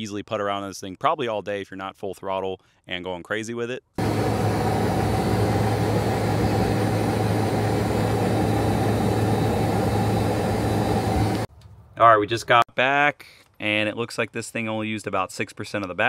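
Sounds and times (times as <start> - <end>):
electric motor hum: 4.0 - 11.5.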